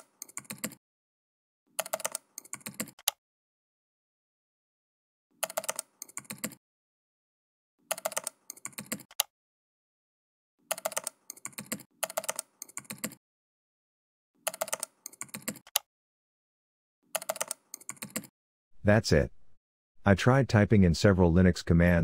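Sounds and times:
computer keyboard typing: 0.0 - 0.8, 1.7 - 3.2, 5.4 - 6.6, 7.8 - 9.3, 10.6 - 13.2, 14.4 - 15.8, 17.1 - 18.3.

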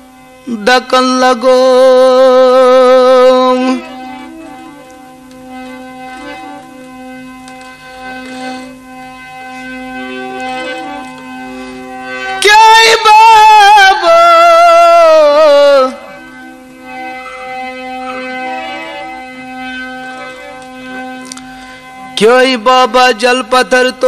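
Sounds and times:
man singing with vibrato: 0.0 - 4.8, 12.0 - 16.7, 22.0 - 24.0
harmonium playing: 0.0 - 24.0.

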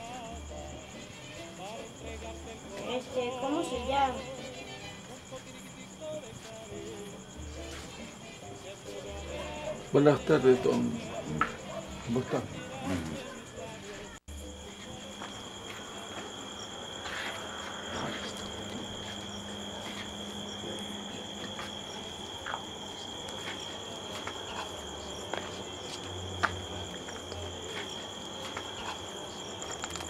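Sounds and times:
crickets trilling: 0.0 - 30.0.

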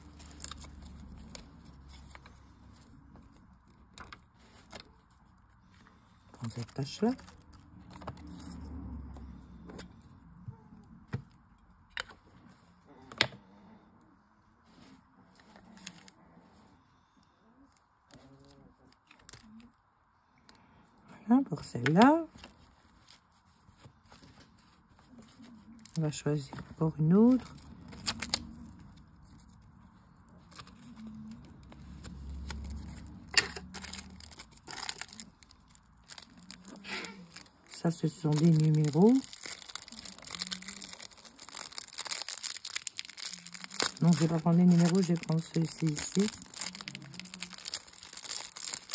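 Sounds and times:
plastic sheets crinkling: 0.0 - 8.6, 22.0 - 48.9
rumble of handling plastic: 0.0 - 48.9.

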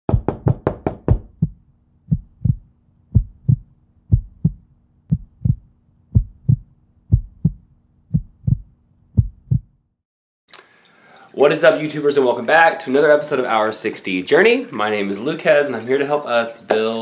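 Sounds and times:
heartbeat thumps: 0.1 - 9.8.

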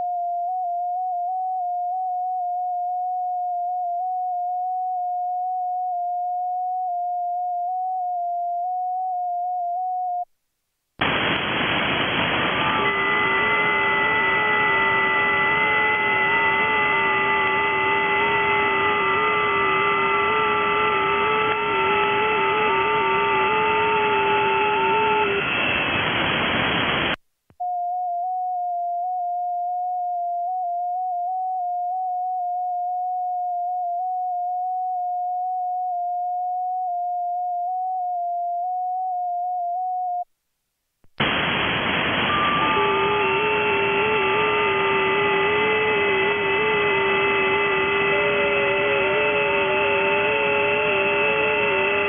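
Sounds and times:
digital mode transmit tone: 0.0 - 10.3, 11.9 - 40.3, 41.2 - 52.0
radio receiver hiss: 11.0 - 27.2, 41.1 - 52.0
stepping digital radio tones: 11.0 - 27.2, 41.2 - 52.0.

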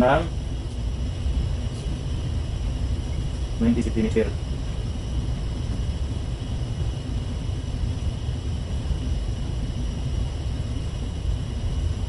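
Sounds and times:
low machinery rumble: 0.0 - 12.0.

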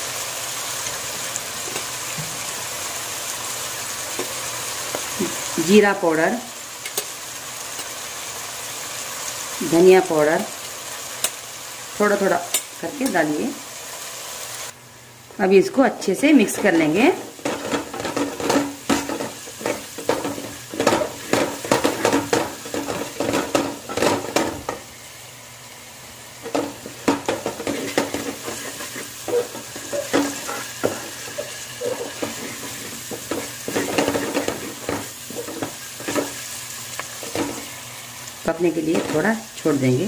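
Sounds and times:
oil sizzling: 0.0 - 40.0
wooden spatula scraping pot: 16.4 - 24.8, 26.4 - 36.4.

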